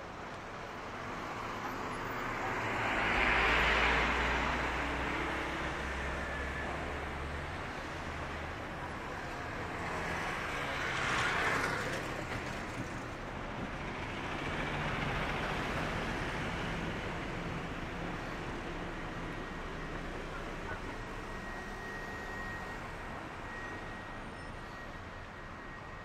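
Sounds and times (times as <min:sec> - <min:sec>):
traffic noise: 0:00.0 - 0:26.0.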